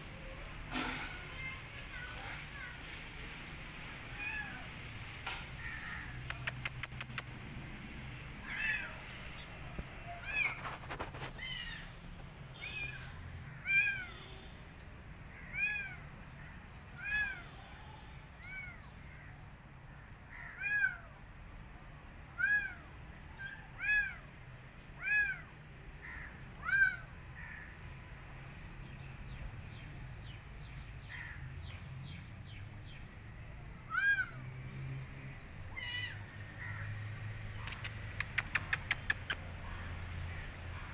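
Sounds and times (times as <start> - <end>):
kitten meowing: 8.4 - 9.1.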